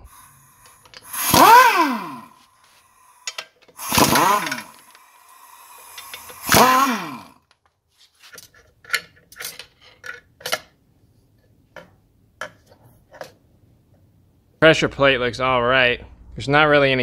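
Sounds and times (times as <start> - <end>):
air impact wrench whirring: 0.0 - 7.5.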